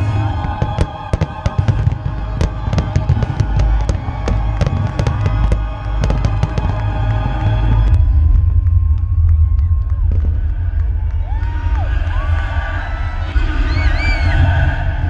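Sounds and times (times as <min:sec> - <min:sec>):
deep rumble: 0:00.0 - 0:15.0
film music playing: 0:00.0 - 0:15.0
firework shells bursting: 0:00.2 - 0:07.9.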